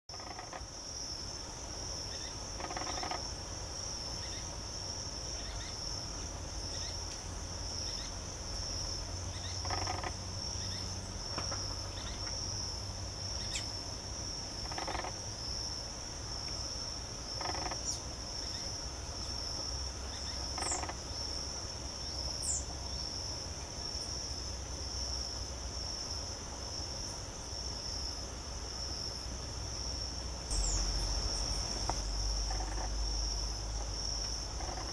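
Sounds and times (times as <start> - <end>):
high-pitched insect chorus: 0.1 - 34.9
thin high bird calls: 20.1 - 21.0, 30.5 - 33.0.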